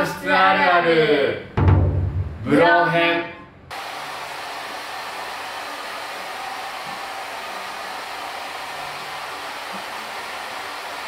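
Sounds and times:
hair dryer blowing: 3.7s - 11.0s.

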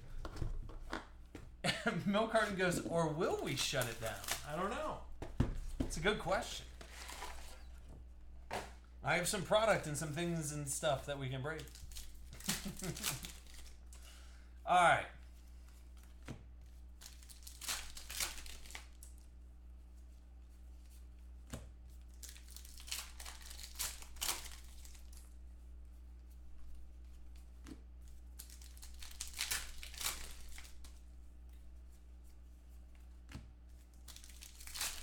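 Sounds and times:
cards being handled: 2.4s - 8.8s, 26.7s - 35.0s
foil wrappers tearing and crinkling: 3.3s - 4.7s, 11.6s - 13.9s, 17.0s - 19.2s, 22.1s - 25.4s, 28.3s - 31.0s, 33.9s - 35.0s.

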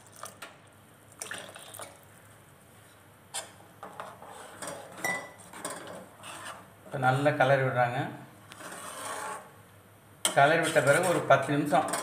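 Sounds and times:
ladle scraping a pan: 3.4s - 7.2s, 8.5s - 9.5s, 10.3s - 12.0s.

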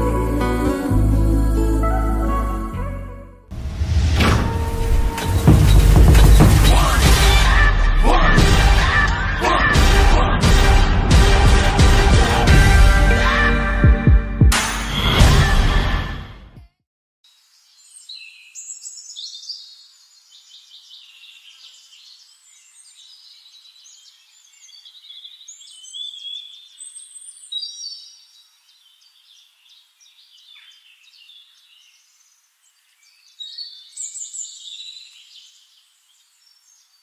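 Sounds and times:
small birds chirping: 17.4s - 37.0s.

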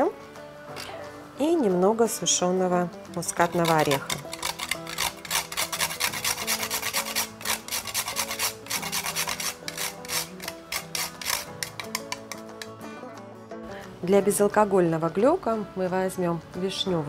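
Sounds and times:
nutmeg grating on metal grater: 3.2s - 12.8s.

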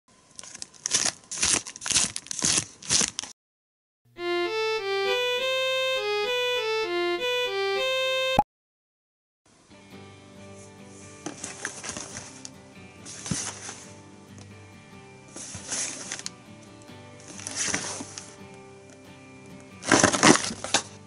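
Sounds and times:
plastic wrapper crinkling: 0.3s - 3.4s
electronic jingle: 4.2s - 8.4s
soft background music: 9.6s - 21.0s.

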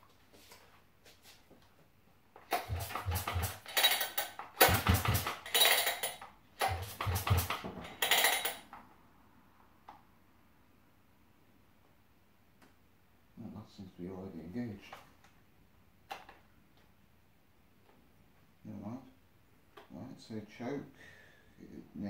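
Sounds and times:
engine turning over without firing: 2.5s - 8.5s
chainsaw recoil starter pulled: 2.5s - 8.7s.

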